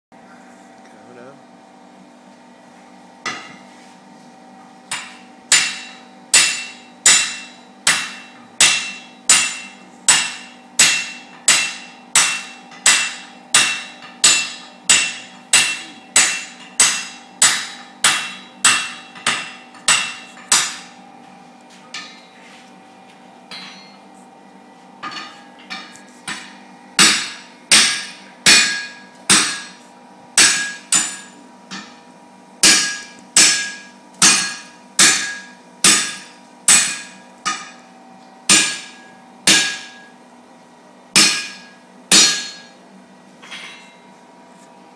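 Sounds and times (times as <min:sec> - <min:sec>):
hammer blows ringing on anvil: 0:04.9 - 0:21.0, 0:23.5 - 0:24.0, 0:25.0 - 0:29.8, 0:30.4 - 0:32.0, 0:32.6 - 0:37.9, 0:38.5 - 0:40.2, 0:41.1 - 0:42.8.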